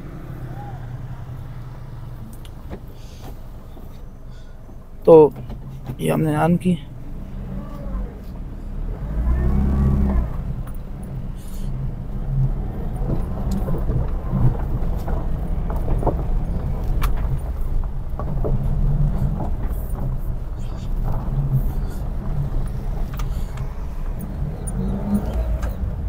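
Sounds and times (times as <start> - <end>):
van engine pulling away: 0.0 - 26.0
tyres on gravel clicks: 12.2 - 26.0.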